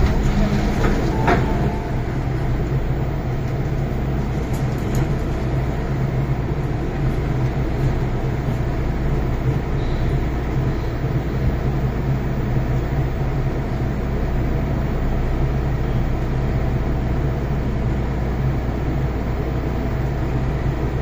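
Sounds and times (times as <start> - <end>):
low even hum: 0.0 - 4.0
train wheels rumbling on track: 0.0 - 21.0.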